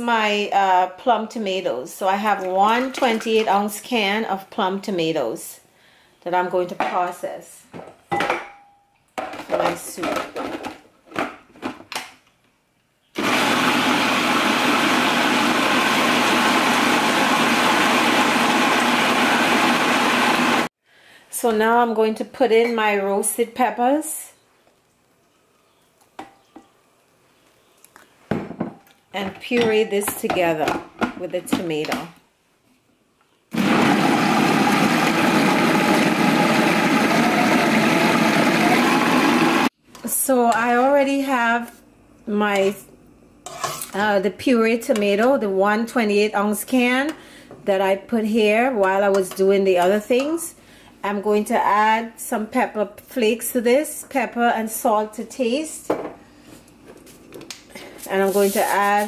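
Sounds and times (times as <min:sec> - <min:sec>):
food processor running: 0:13.2 - 0:20.7, 0:33.5 - 0:39.7.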